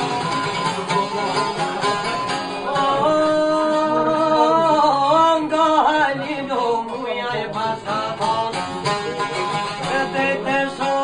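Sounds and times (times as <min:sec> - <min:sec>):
long-necked lute plucked: 0:00.0 - 0:11.0
man singing long wavering notes: 0:02.7 - 0:08.6.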